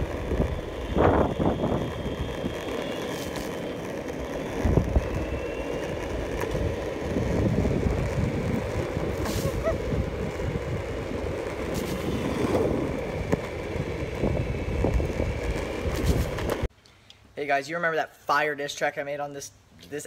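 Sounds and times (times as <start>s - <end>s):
wind buffeting microphone: 0.0s - 3.0s, 4.2s - 16.7s.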